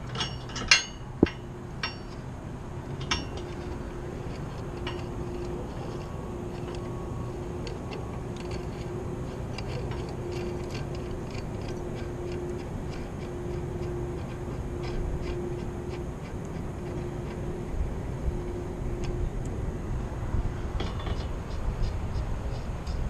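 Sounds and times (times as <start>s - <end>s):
metallic ticks of nut turning: 0.0s - 2.2s, 2.9s - 17.6s
intermittent mid-pitched hum: 0.0s - 23.0s
low wind rumble on microphone: 0.0s - 23.0s.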